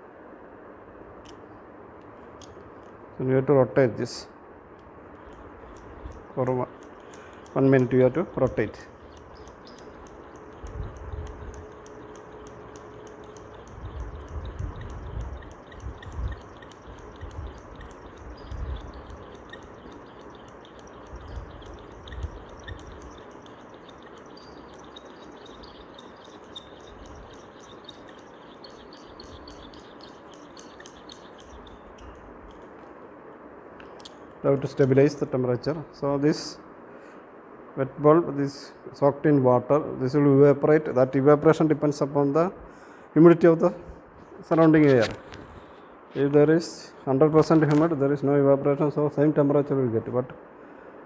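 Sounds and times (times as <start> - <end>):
light ticks and high squeaks: 4.8 - 33.1, 33.8 - 35.3.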